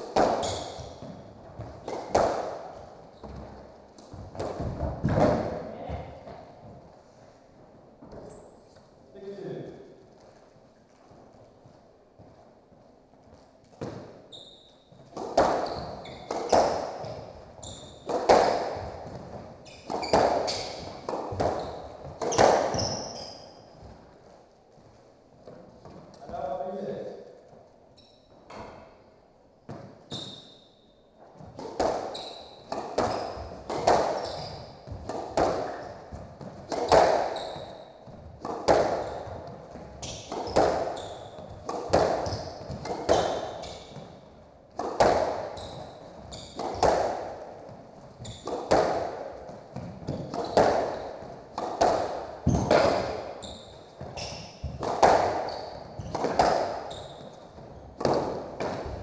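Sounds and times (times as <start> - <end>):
squash ball hits echoing: 0.0 - 6.8, 13.7 - 14.2, 14.8 - 24.1, 31.4 - 59.0.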